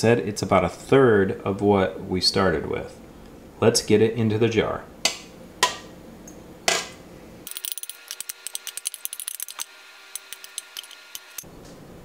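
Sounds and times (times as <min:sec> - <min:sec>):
metal spoon clinking on jar: 0:10.2 - 0:11.4.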